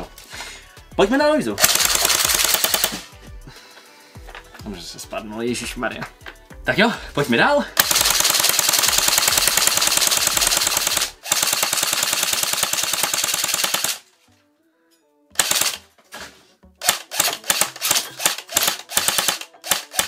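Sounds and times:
airsoft gun firing bursts: 1.6s - 3.1s, 7.8s - 14.0s, 15.4s - 15.8s, 16.8s - 20.0s.

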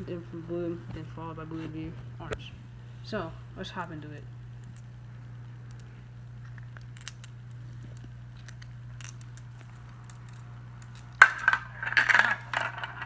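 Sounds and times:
low background hum: 0.0s - 13.0s
marble striking plastic track: 10.3s - 13.0s.

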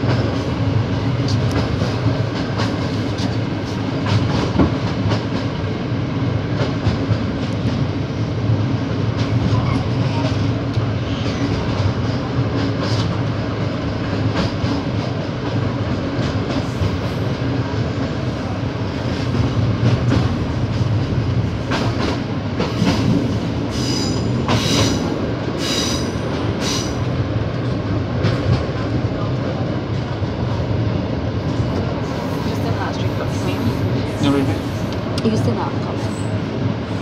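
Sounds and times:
train rumble and hum: 0.0s - 37.0s
train wheels squealing: 23.7s - 27.0s.

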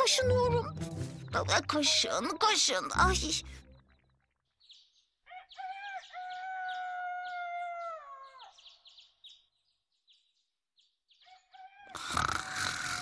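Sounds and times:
small birds chirping: 0.0s - 13.0s
rooster crowing: 5.3s - 8.5s, 11.3s - 12.0s.

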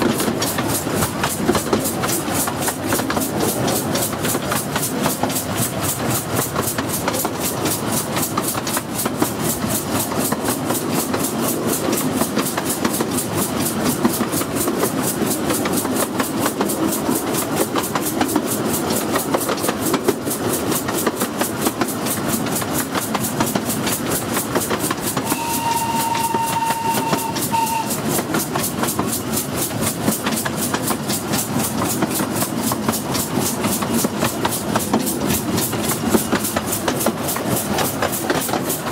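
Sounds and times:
steam locomotive beat: 0.0s - 38.9s
wheels rattling on track: 0.0s - 38.9s
steam whistle: 25.2s - 28.0s.

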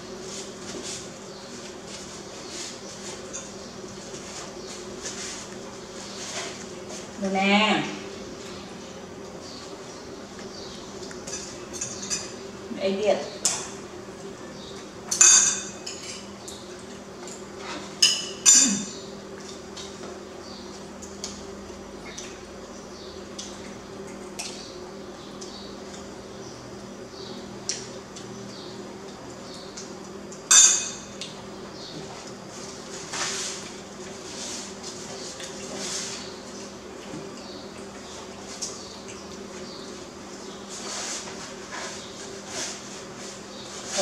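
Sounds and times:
cutlery clinking on ceramic plate: 30.5s - 31.1s.

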